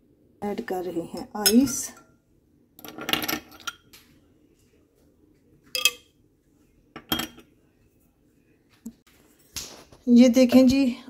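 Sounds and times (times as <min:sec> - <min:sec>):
spoon clinking against glass: 0:05.8 - 0:06.1.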